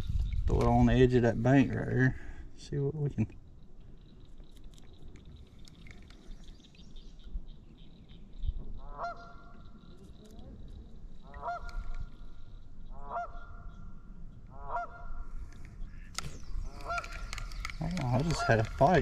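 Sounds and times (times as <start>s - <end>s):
goose honking: 8.8s - 9.5s, 11.2s - 11.9s, 12.9s - 13.6s, 14.5s - 15.2s, 18.2s - 19.0s.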